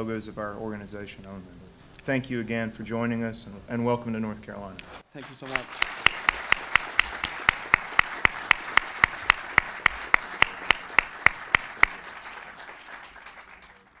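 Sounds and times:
audience applauding: 5.0s - 14.0s
loud even hand claps: 5.1s - 14.0s.

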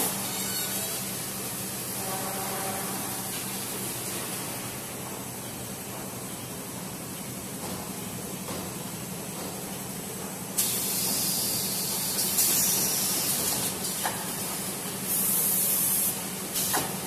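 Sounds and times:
pneumatic air hisses: 10.6s - 17.0s.

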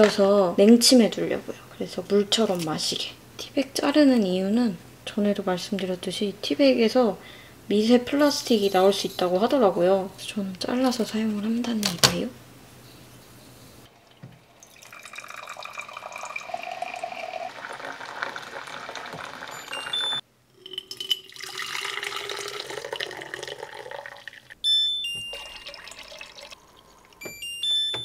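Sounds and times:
tea pouring into pitcher: 13.9s - 24.6s, 25.3s - 27.2s
water running into teapot: 13.9s - 24.6s, 25.3s - 27.2s
electronic beeps: 19.5s - 20.2s, 24.6s - 25.8s, 27.2s - 28.0s.

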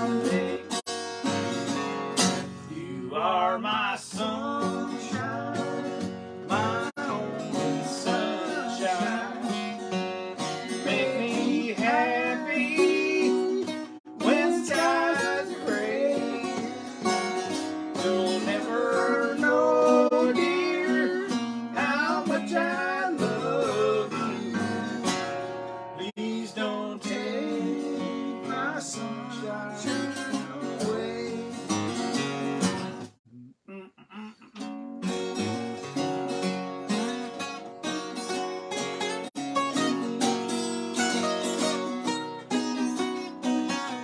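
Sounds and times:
man singing: 0.0s - 0.8s, 2.6s - 25.0s, 26.0s - 32.7s
acoustic guitars strumming: 0.0s - 33.2s, 34.2s - 44.0s.

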